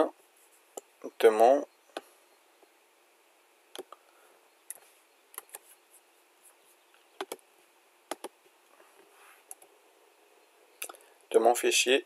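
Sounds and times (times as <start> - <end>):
mouse and keyboard clicks: 4.7 - 5.7, 7.2 - 7.4, 8.1 - 8.4.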